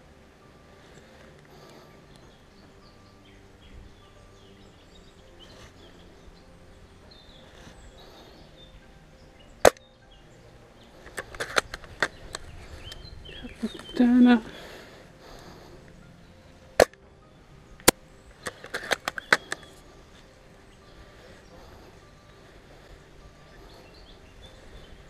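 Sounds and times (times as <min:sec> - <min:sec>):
rifle bolt clicks: 0:11.1 - 0:13.0, 0:17.8 - 0:19.7.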